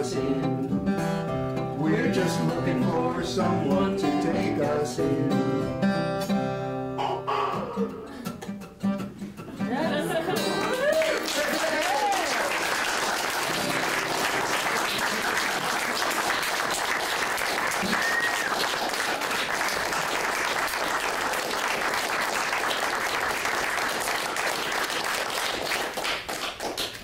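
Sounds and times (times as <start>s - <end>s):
audience applauding: 10.4s - 27.0s.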